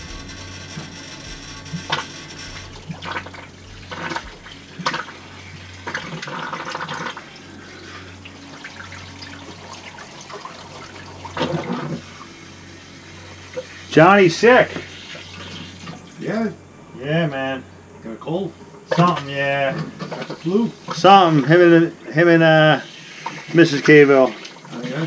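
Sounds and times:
water gushing through valve: 0.0s - 12.4s, 13.1s - 16.2s, 22.4s - 25.0s
steady low hum: 0.0s - 23.3s.

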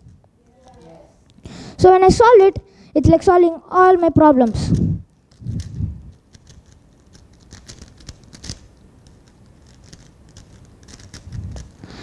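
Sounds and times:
puzzle cube clicking: 4.4s - 11.9s.

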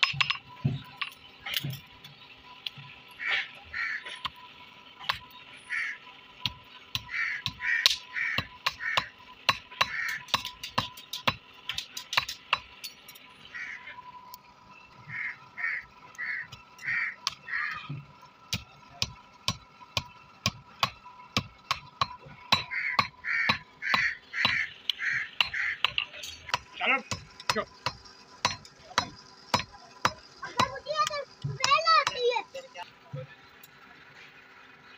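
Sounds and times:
hammer striking steel on anvil: 6.4s - 13.1s, 18.5s - 24.7s, 25.4s - 30.8s.

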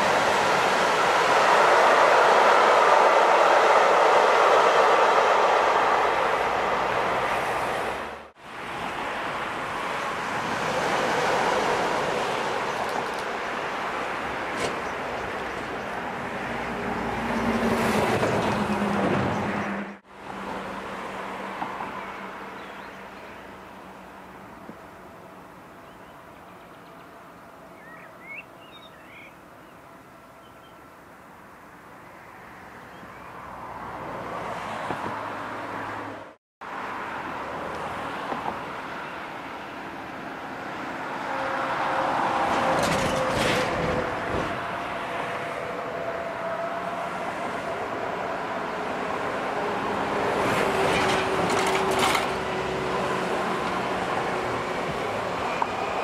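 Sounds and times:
electric locomotive passing: 0.0s - 25.8s, 36.8s - 56.0s
bird chirps: 27.8s - 29.8s.

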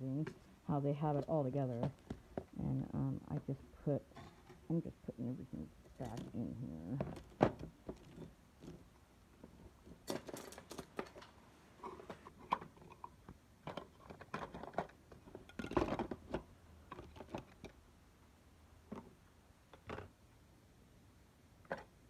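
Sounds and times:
plastic trays and tools rattling: 5.8s - 17.8s.

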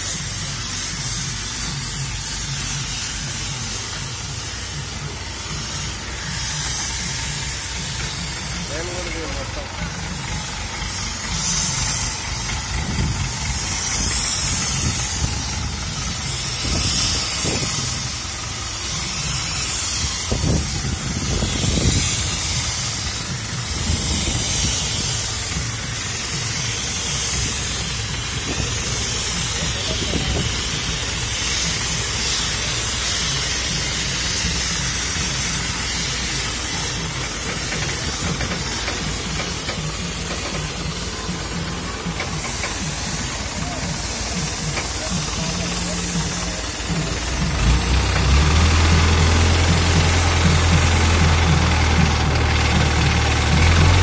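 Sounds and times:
constant hiss: 0.0s - 54.0s
diesel engine running: 0.0s - 54.0s.

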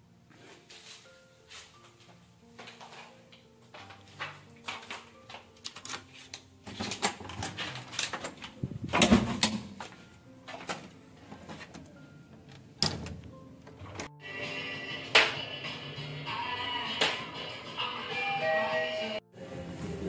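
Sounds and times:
door lock and handle clicking: 11.7s - 14.1s.

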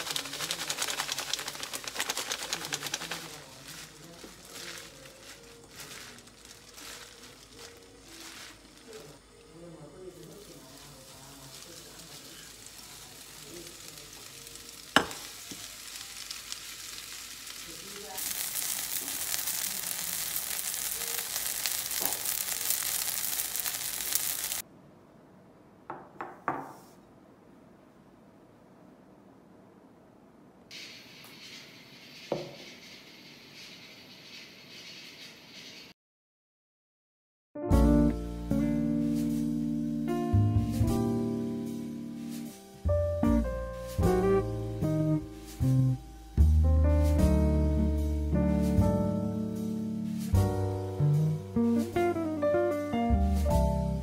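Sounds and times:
gloved hand rustling: 0.0s - 13.4s
plastic packaging crackling: 0.0s - 24.6s
pancake sizzling in oil: 10.1s - 24.6s.

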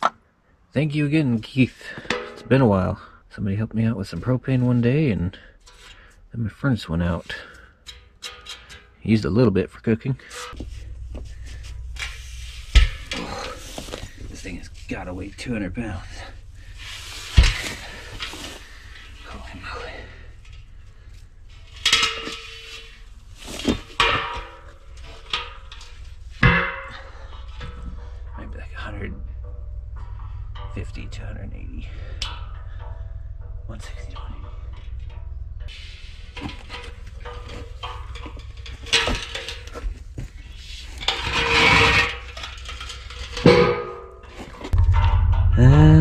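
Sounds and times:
steel tank knocking and clanking: 1.9s - 2.6s, 10.3s - 45.6s
steady low hum: 10.2s - 46.0s.

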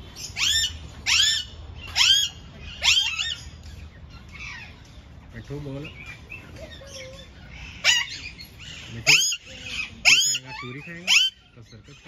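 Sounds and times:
parakeets screeching: 0.1s - 12.0s.

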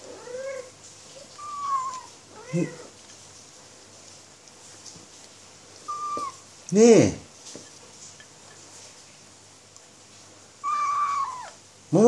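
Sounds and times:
kitten mewing: 1.3s - 2.9s, 5.8s - 6.4s, 10.6s - 11.6s.

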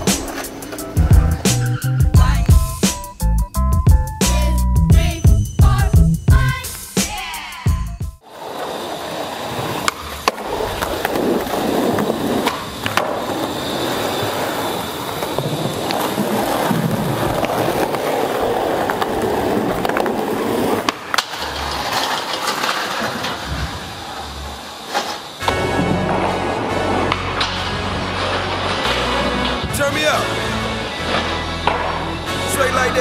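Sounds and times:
skateboard wheels rolling on concrete: 0.0s - 33.0s
skateboard clacks: 8.4s - 23.9s, 31.0s - 32.3s.

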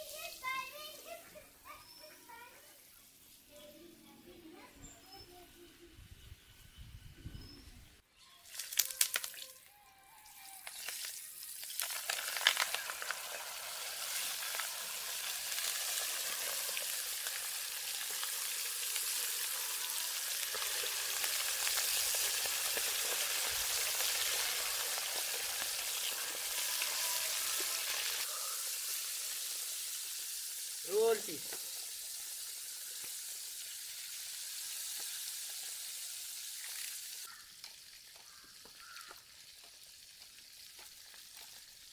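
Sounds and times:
fish sizzling in hot oil: 10.4s - 41.9s.

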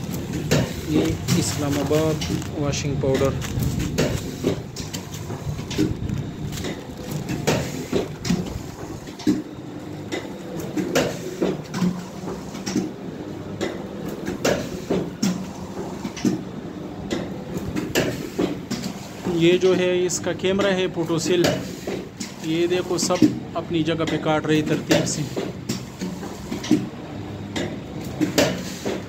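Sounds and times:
packing machine hum: 0.0s - 29.0s
machine sealing knock: 3.1s - 9.5s.

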